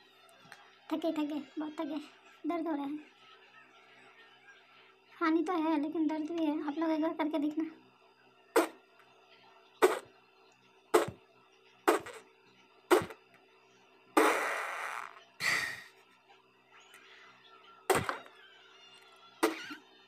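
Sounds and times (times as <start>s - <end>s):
air sputtering through lips: 8.6s - 8.8s, 9.8s - 10.1s, 10.9s - 11.3s, 11.9s - 12.3s, 12.9s - 13.3s, 14.2s - 16.0s
cheek pops: 11.0s - 11.2s, 11.9s - 12.2s, 12.9s - 13.2s, 14.2s - 15.1s, 17.9s - 18.3s.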